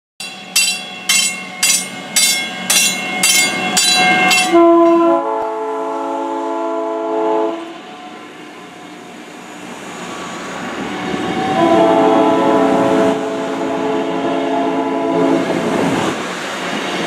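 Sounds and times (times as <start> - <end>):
warning bell clanging: 0.2 - 5.1
electric train horn chord: 4.0 - 9.2, 11.2 - 15.6.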